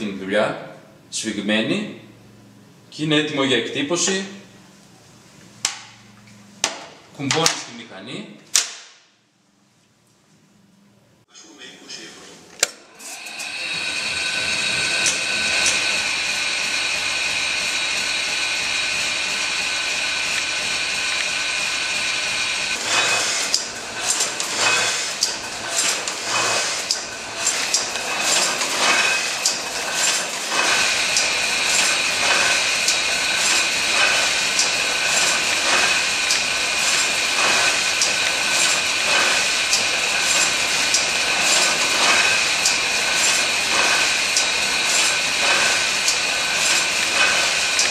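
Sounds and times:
printing press motor whine: 12.6s - 47.9s
printing press clattering: 13.2s - 47.9s.

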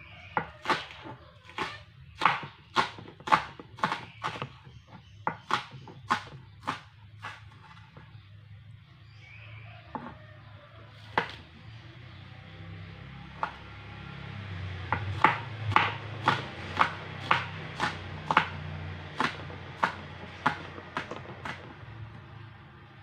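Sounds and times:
knife chopping on cutting board: 0.4s - 8.0s, 11.1s - 11.4s, 13.4s - 13.6s, 14.9s - 21.7s.

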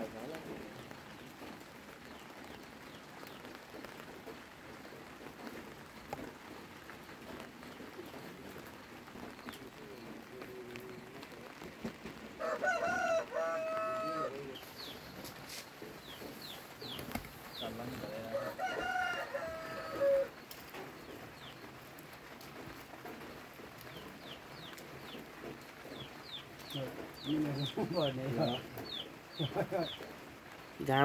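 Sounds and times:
small birds chirping: 0.0s - 31.0s
rooster crowing: 12.4s - 14.5s, 18.1s - 20.4s.

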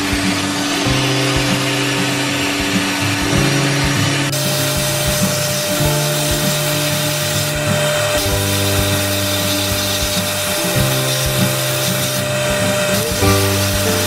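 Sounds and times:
background music with sustained notes: 0.0s - 14.0s
sandblast gun hissing: 4.4s - 14.0s.

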